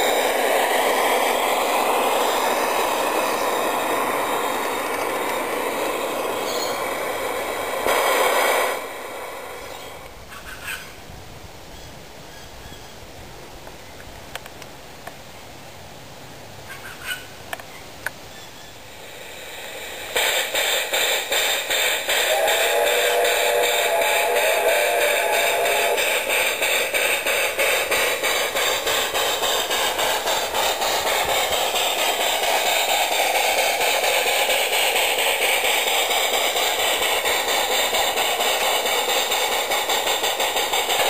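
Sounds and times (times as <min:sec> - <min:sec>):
model train rolling on track: 0:00.0 - 0:10.9, 0:18.3 - 0:41.0
loud rhythmic pulsing: 0:19.3 - 0:41.0.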